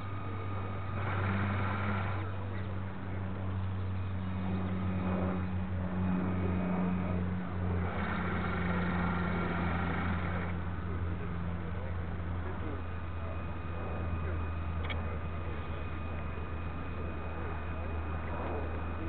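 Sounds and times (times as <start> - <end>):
high motor whine: 0.0 - 19.0
model boat motor humming: 0.0 - 19.0.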